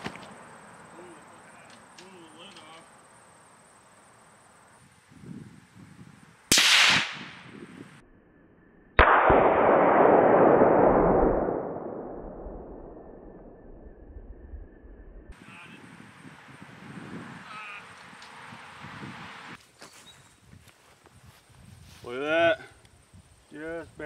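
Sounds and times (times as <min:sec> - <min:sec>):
rifle shots echoing: 0:06.5 - 0:07.4, 0:09.0 - 0:12.3.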